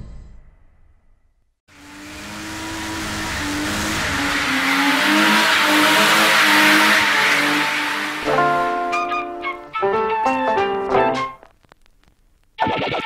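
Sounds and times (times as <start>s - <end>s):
race car engine revving: 1.7s - 9.3s.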